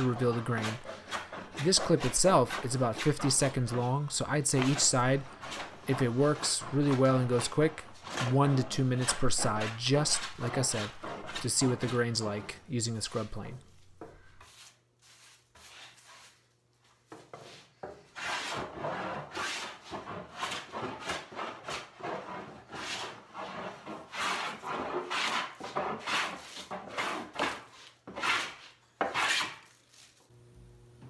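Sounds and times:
plane rasping across wood: 0.0s - 12.6s, 18.2s - 29.7s.

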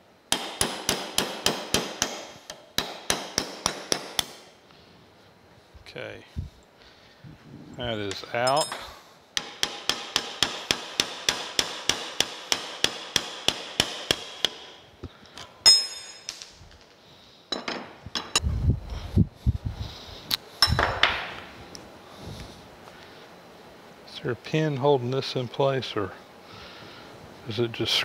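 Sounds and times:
hammer tapping on steel: 0.3s - 4.4s, 8.1s - 14.7s
dull knocks of metal parts: 0.3s - 4.5s, 8.1s - 16.6s
ringing metal clang: 8.4s - 9.0s, 15.6s - 16.4s.

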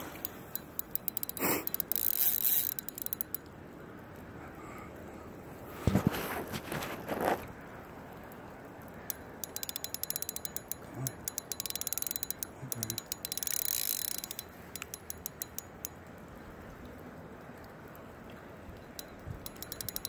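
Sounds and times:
fishing reel clicking: 0.0s - 3.5s, 9.1s - 16.0s, 18.8s - 20.0s.

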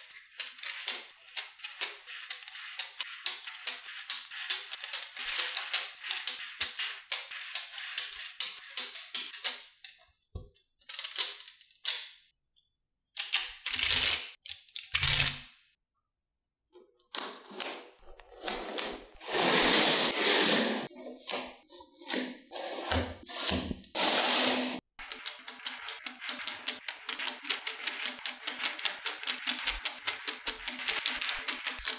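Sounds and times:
magnetic balls clicking together: 0.3s - 12.3s, 25.0s - 31.9s
balls rattling on tabletop: 0.4s - 9.8s, 25.5s - 31.9s.

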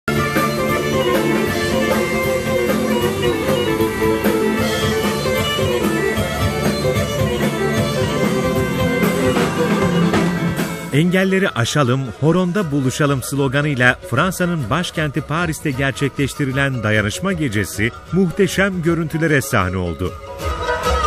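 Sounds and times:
steady drum beat: 0.1s - 11.3s
lively folk dance music: 0.1s - 21.0s.

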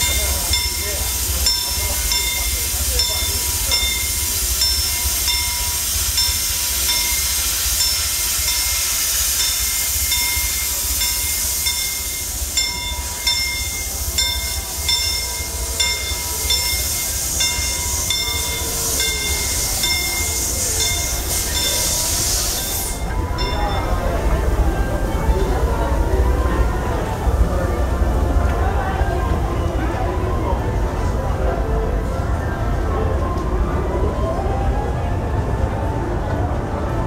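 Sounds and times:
ringing strike: 0.0s - 21.9s
steam train hissing and rumbling: 0.0s - 37.0s.

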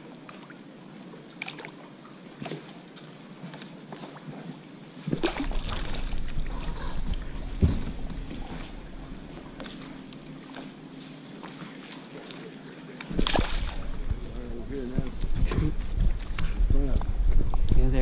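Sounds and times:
faint steady hum: 0.0s - 18.0s
wind buffeting microphone: 13.1s - 18.0s.

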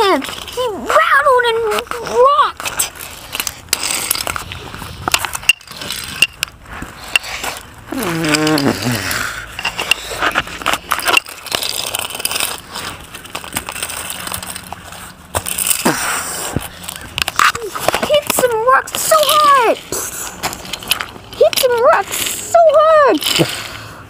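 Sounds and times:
toy train clattering and scraping: 16.8s - 23.9s.

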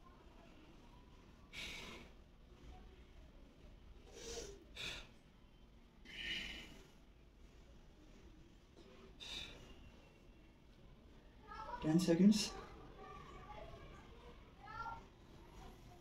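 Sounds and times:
man breathing heavily: 6.0s - 7.2s.

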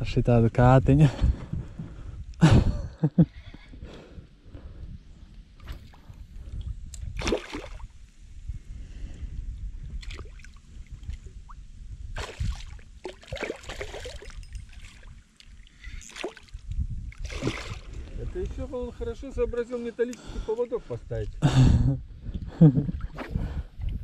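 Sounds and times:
fish thrashing and splashing: 7.2s - 7.9s, 12.2s - 17.9s.

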